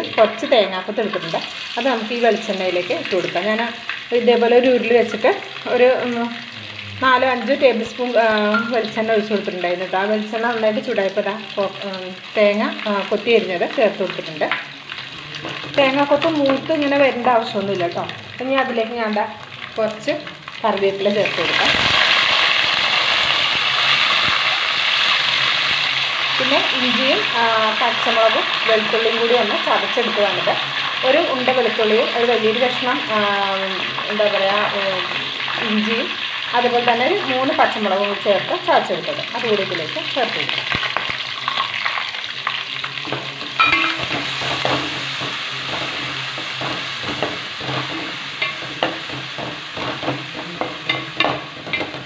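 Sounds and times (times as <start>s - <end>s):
food frying in oil: 0.0s - 52.0s
leaves sizzling in hot oil: 0.0s - 52.0s
wooden spatula stirring: 43.9s - 52.0s.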